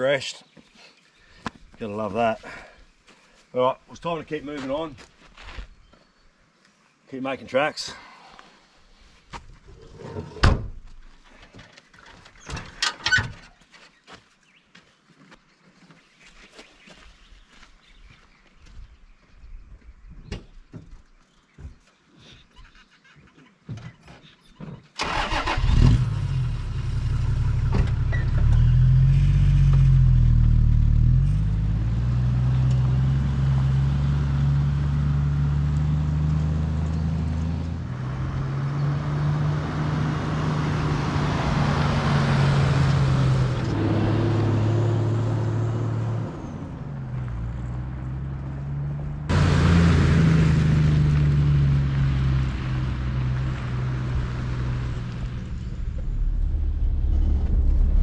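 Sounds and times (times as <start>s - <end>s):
vehicle engine starting and driving: 25.0s - 58.0s.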